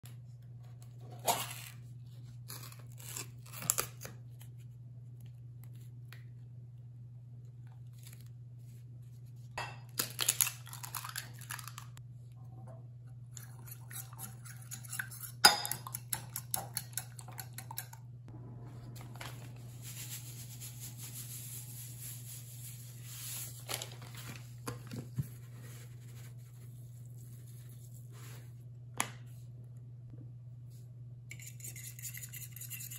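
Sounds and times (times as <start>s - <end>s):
steady low hum: 12.0s - 32.9s.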